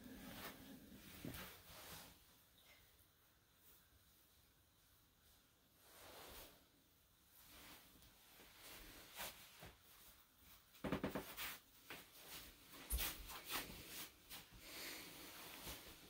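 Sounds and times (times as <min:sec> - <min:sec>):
feet shuffling on mats: 0:11.1 - 0:16.0.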